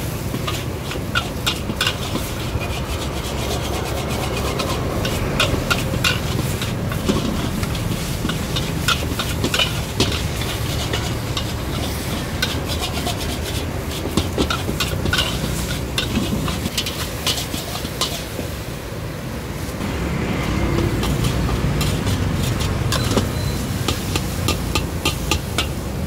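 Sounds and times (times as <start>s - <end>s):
metal spatula scraping wok: 0.0s - 18.9s, 19.6s - 26.0s
food frying: 0.0s - 26.0s.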